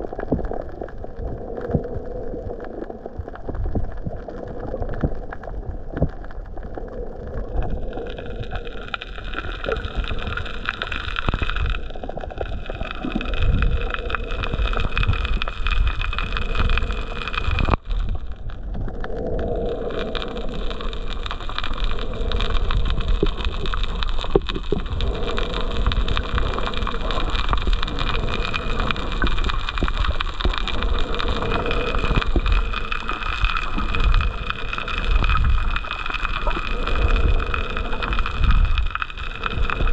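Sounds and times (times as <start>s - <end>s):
muffled underwater rumble: 0.0s - 39.9s.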